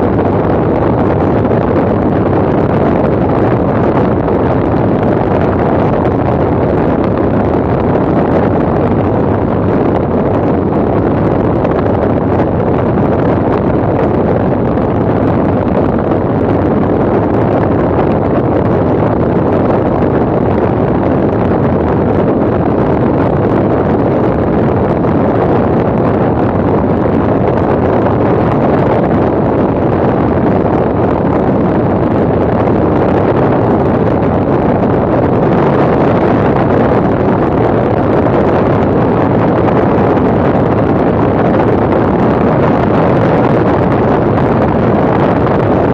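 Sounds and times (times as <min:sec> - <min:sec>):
aircraft engine and propeller drone: 0:00.0 - 0:45.9
wind buffeting microphone: 0:00.0 - 0:45.9.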